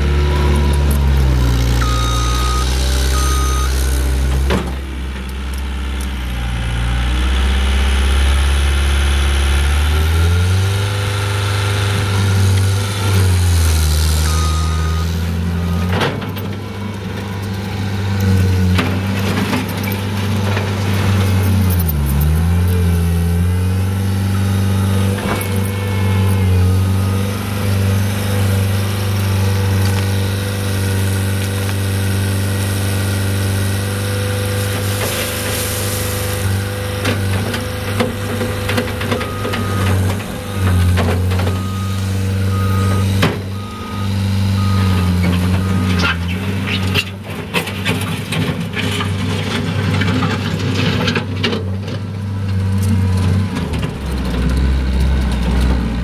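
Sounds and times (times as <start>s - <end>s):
diesel engine running hard: 0.0s - 56.0s
backup alarm beep: 1.8s - 3.8s, 14.3s - 15.1s, 39.1s - 46.0s.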